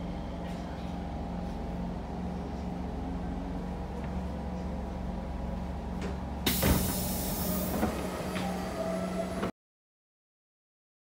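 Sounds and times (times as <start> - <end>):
train carriage low hum: 0.0 - 9.5
loud air hiss from train: 6.5 - 8.6.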